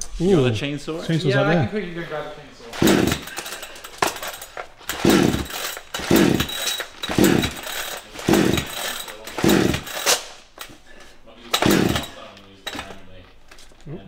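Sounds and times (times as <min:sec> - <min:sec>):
chainsaw pull-start cranking: 0:02.7 - 0:10.8, 0:11.5 - 0:13.0.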